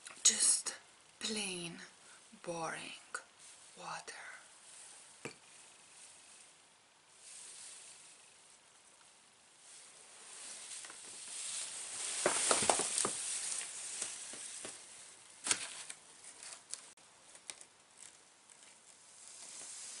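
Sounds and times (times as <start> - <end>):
plastic streamers rustling: 4.6 - 8.5, 9.6 - 20.0.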